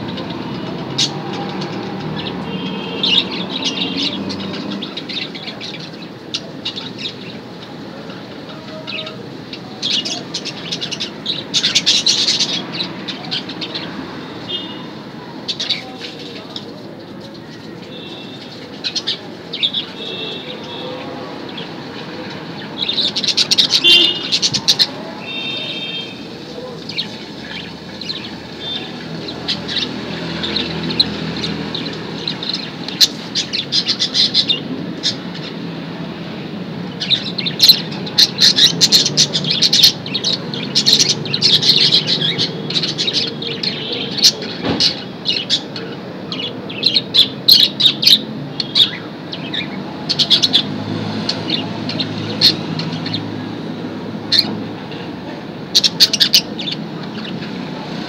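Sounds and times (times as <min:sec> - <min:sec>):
budgerigars chirping: 0:09.8 - 0:13.9, 0:26.9 - 0:35.5, 0:37.0 - 0:50.7, 0:55.8 - 0:57.4.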